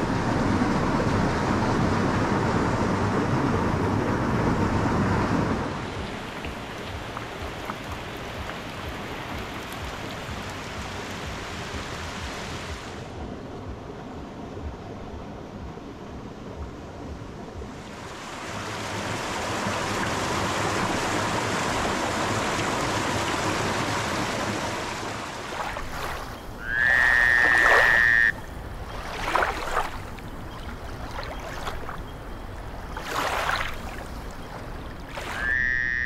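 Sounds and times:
water rushing over stone: 5.8 - 13.0, 18.0 - 35.6
short falling calls: 26.6 - 28.4.

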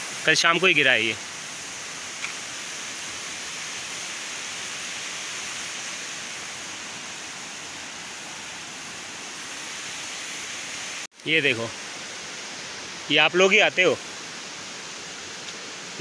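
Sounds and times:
waterfall rushing over rocks: 0.0 - 16.0.

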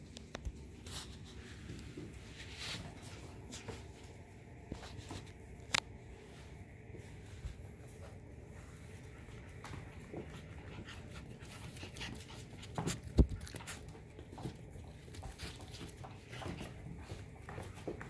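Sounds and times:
paws and toys clicking on floor: 9.0 - 18.0.

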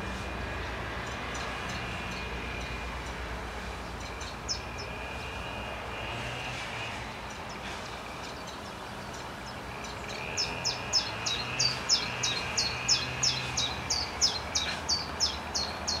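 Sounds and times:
chiffchaff singing: 6.9 - 16.0.

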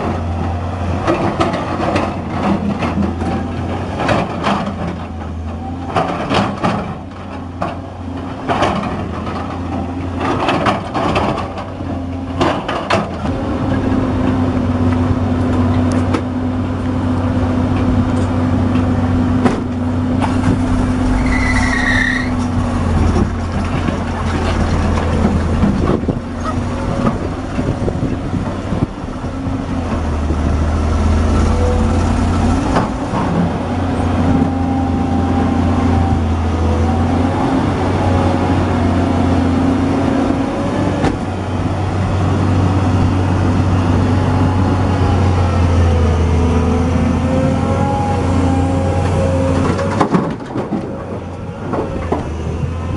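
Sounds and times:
excavator diesel engine: 0.0 - 52.9
brief squeal: 21.0 - 22.5.

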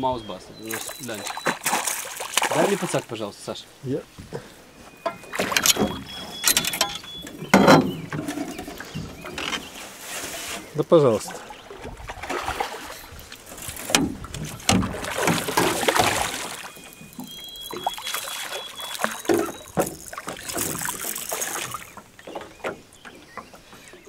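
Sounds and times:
fish splashing at water surface: 0.6 - 3.1, 11.4 - 22.8
net dipping into water: 0.7 - 2.9, 12.1 - 22.0
sharp knocks: 5.0 - 8.3, 13.9 - 16.2.

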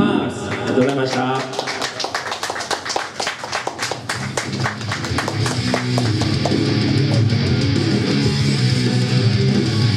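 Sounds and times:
heavy metal band playing: 5.0 - 9.9.

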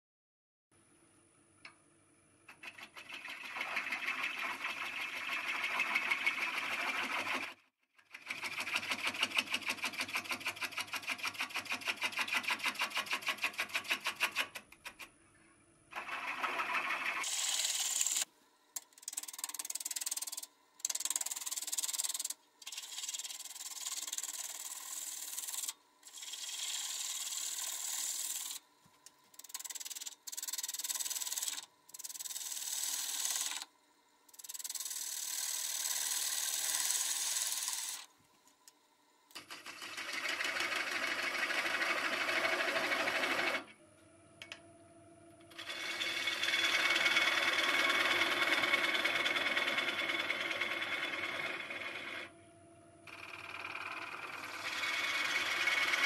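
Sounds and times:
gouge cutting wood on lathe: 2.5 - 7.6, 16.0 - 18.2, 21.6 - 28.6, 34.7 - 38.1, 39.9 - 43.6, 45.6 - 52.3, 53.2 - 56.0
faint lathe whine: 15.1 - 56.0.

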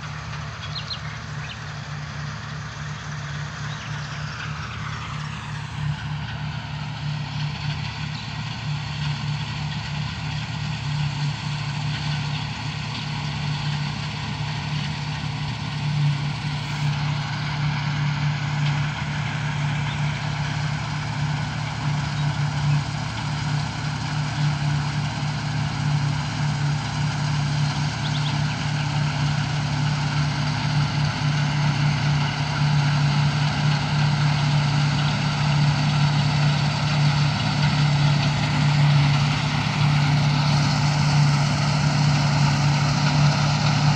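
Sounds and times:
combine harvester drone: 0.0 - 43.9.

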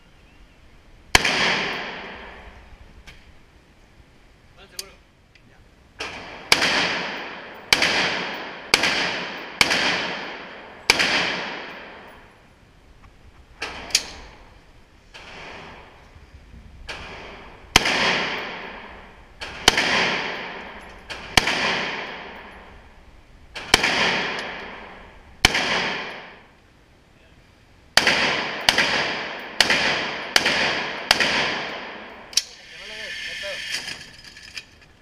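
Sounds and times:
rifle shots echoing: 1.1 - 2.6, 6.0 - 12.4, 16.9 - 26.6, 27.9 - 32.4.

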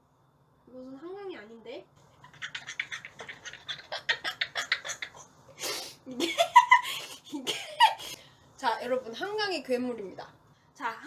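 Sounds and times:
woman laughing breathlessly: 2.4 - 8.2.

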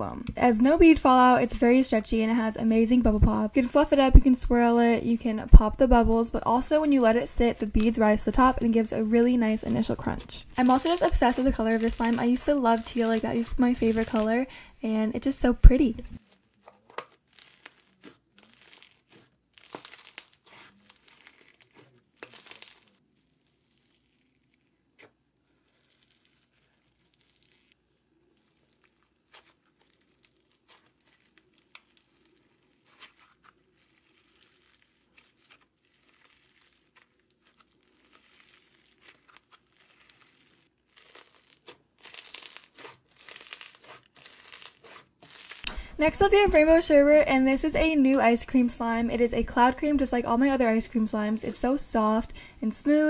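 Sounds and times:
slime crackling and popping: 9.5 - 14.4, 15.5 - 46.6.

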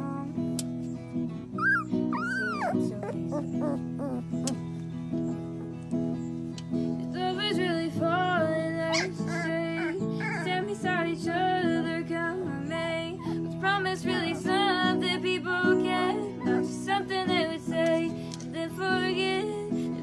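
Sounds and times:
woman singing: 0.0 - 0.5, 7.0 - 20.0
acoustic guitar: 0.0 - 20.0.

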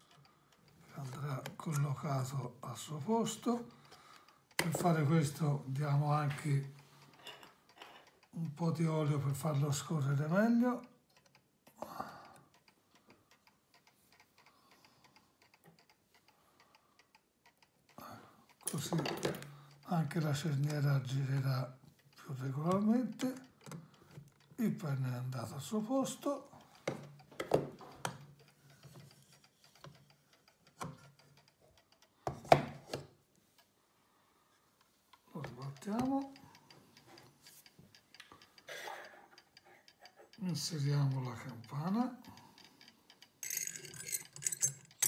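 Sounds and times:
clock ticking quickly: 0.0 - 33.8, 35.1 - 45.0
bezel clicking and knocking: 3.3 - 5.4, 6.2 - 9.9, 10.7 - 33.8, 34.8 - 45.0
brass bezel rubbing: 43.4 - 45.0.

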